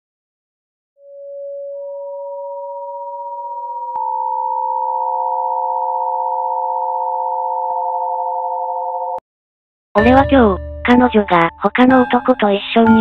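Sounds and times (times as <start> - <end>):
synthesized sine tone chord: 1.0 - 9.2.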